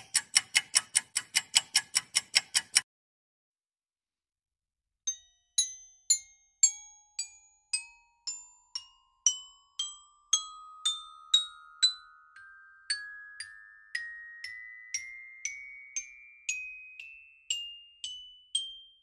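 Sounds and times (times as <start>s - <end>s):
glockenspiel bell notes: 5.1s - 19.0s.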